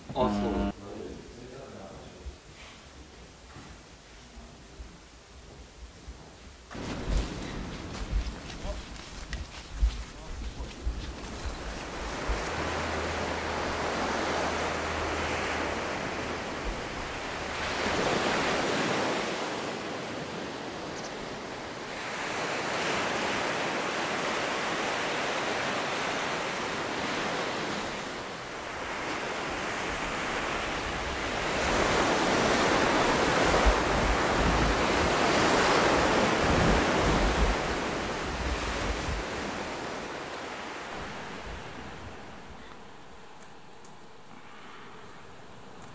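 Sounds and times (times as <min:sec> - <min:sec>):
wind rumble on microphone: 0:06.7 - 0:19.3, 0:27.7 - 0:43.9
sea surf breaking on beach: 0:06.7 - 0:43.2.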